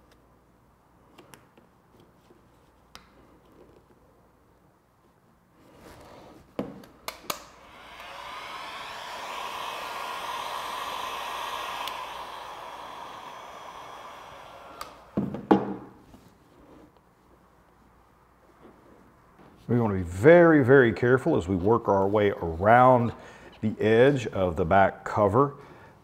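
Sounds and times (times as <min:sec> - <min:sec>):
heat gun blowing: 0:07.3 - 0:15.8
heat gun knocking on table: 0:15.2 - 0:15.9.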